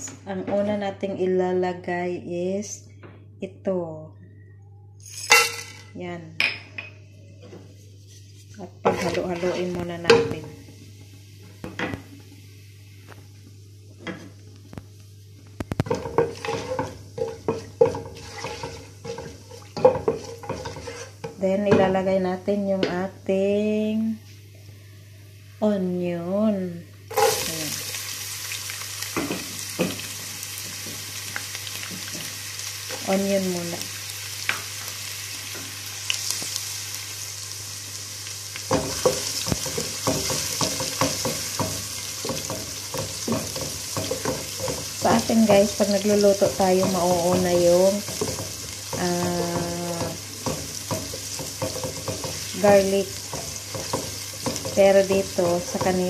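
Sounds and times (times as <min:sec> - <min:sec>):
wooden spoon scraping a pot: 0:07.8 - 0:09.9, 0:15.8 - 0:21.3, 0:38.8 - 0:56.0
oil sizzling: 0:08.0 - 0:21.4, 0:27.0 - 0:56.0.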